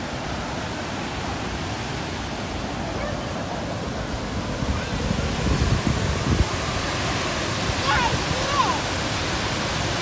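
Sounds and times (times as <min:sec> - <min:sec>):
waterfall roaring: 0:00.0 - 0:10.0
wind buffeting microphone: 0:03.7 - 0:10.0.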